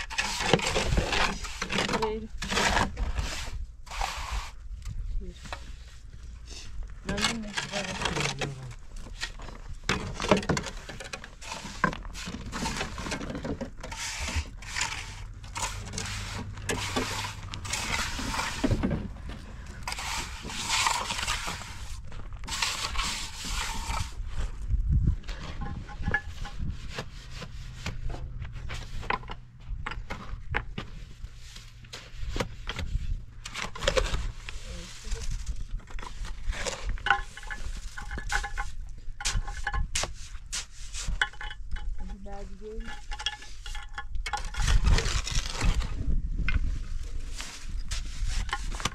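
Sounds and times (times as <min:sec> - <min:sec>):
shovel scraping cement in wheelbarrow: 0:00.0 - 0:04.6, 0:07.0 - 0:24.2, 0:30.2 - 0:41.5, 0:47.1 - 0:48.9
trowel scraping mortar on stone: 0:00.0 - 0:04.6, 0:07.0 - 0:19.0, 0:19.6 - 0:24.2, 0:25.3 - 0:29.3, 0:31.3 - 0:42.2, 0:47.3 - 0:48.9.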